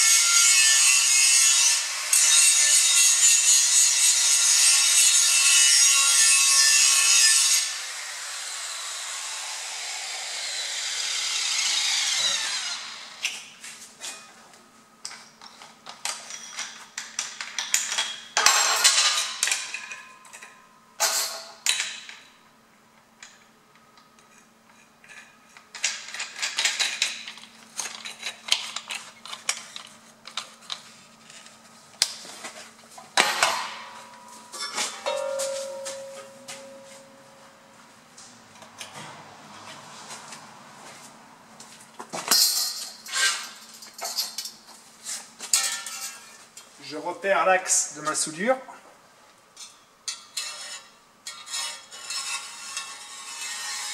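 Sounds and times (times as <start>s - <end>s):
angle grinder grinding steel: 0.0s - 13.3s, 50.1s - 53.9s
grinder disc whining down: 8.7s - 13.2s.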